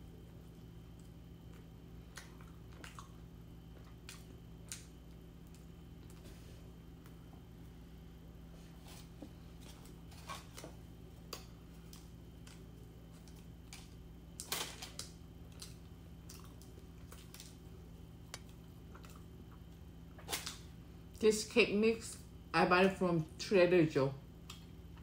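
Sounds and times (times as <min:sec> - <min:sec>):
steady low hum: 0:00.0 - 0:25.0
chewing clicks and crackles: 0:00.5 - 0:06.2, 0:09.6 - 0:20.6.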